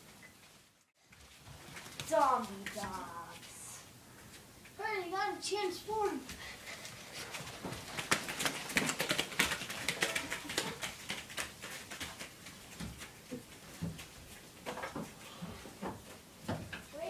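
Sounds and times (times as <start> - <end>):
children running footsteps: 5.8 - 16.7.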